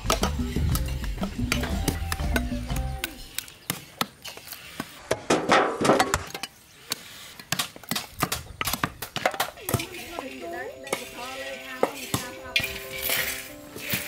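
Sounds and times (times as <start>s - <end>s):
low music: 0.0s - 3.3s, 10.0s - 14.0s
cleaver chopping meat and bone: 0.0s - 4.5s, 6.9s - 9.8s.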